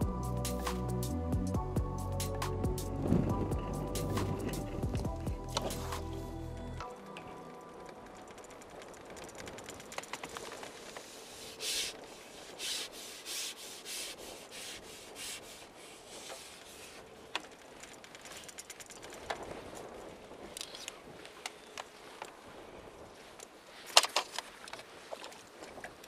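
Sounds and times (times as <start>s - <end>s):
light clicks and ticks: 3.9s - 12.1s, 16.2s - 22.4s
short rasping rubs: 11.0s - 17.1s.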